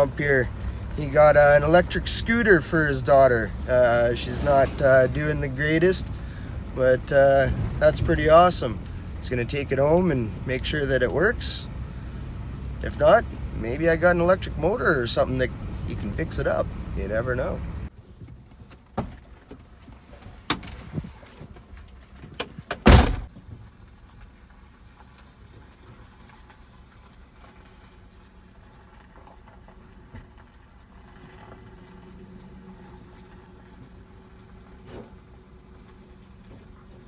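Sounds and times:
truck door slamming: 0:22.4 - 0:23.3.

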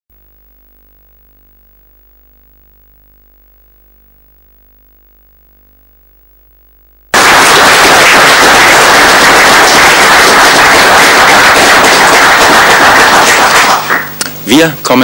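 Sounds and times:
faint hum: 0:00.1 - 0:15.0
audience applauding: 0:07.1 - 0:14.1.

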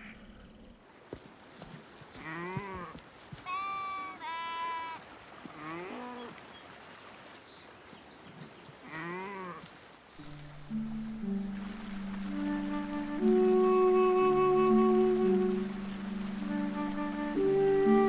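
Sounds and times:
sheep bleating: 0:02.2 - 0:05.0.

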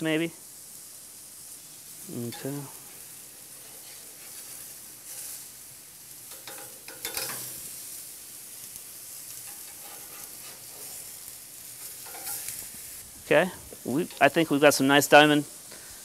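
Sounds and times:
patties sizzling on a grill: 0:00.0 - 0:16.0
metal spatula scraping grate: 0:03.4 - 0:05.5, 0:06.2 - 0:07.8, 0:09.3 - 0:12.7.

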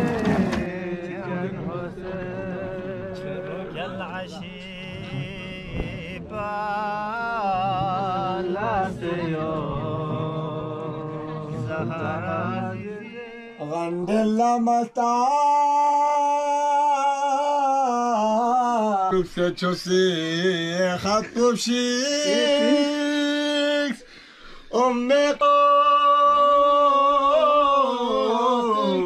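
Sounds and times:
solo voice chanting: 0:20.2 - 0:24.0, 0:24.8 - 0:29.0.

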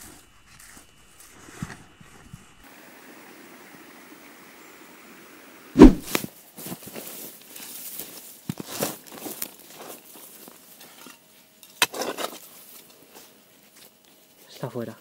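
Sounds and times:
spade blade crunching through turf: 0:05.8 - 0:06.3
spade thudding into soil: 0:05.8 - 0:06.3.

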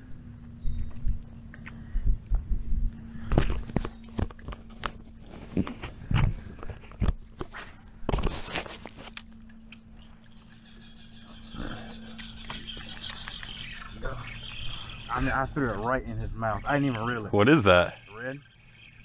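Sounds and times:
steady low hum: 0:00.0 - 0:19.0
fishing gear being handled: 0:03.4 - 0:15.1.

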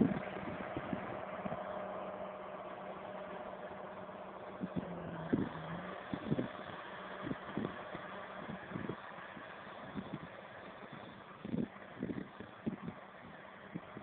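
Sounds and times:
wind buffeting microphone: 0:00.0 - 0:01.7, 0:04.6 - 0:14.0
diesel tractor engine running: 0:00.0 - 0:14.0.

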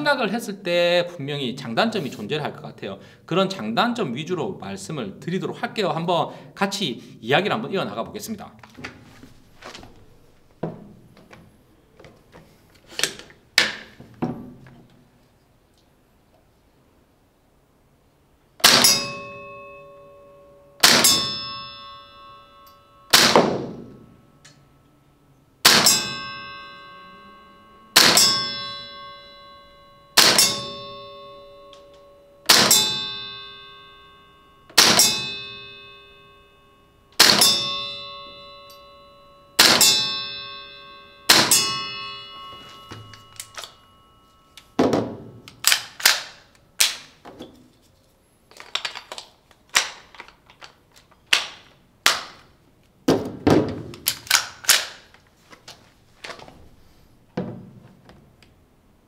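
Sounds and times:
airsoft rifle shots: 0:18.6 - 0:19.1, 0:20.8 - 0:21.4, 0:23.1 - 0:23.9, 0:25.6 - 0:26.2, 0:28.0 - 0:28.4, 0:30.2 - 0:30.8, 0:32.5 - 0:33.0, 0:34.8 - 0:35.3, 0:37.2 - 0:37.7, 0:39.6 - 0:40.1, 0:41.3 - 0:41.8
steel plate target ringing: 0:18.6 - 0:24.9, 0:25.6 - 0:45.5.

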